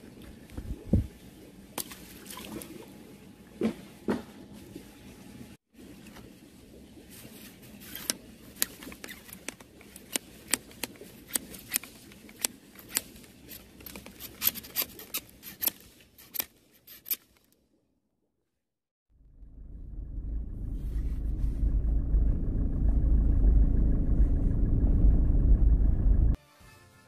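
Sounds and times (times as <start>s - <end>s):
low steady hum: 19.1s - 26.4s.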